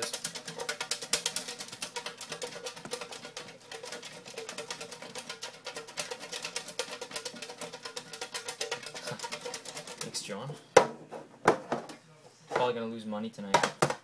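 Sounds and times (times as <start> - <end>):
paper slips rattling in a tin: 0.0 - 10.4.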